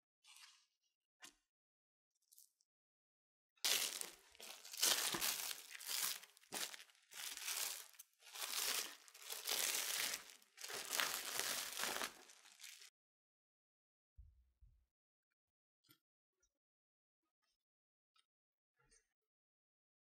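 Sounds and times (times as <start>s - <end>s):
cling film crinkling: 3.7s - 12.9s.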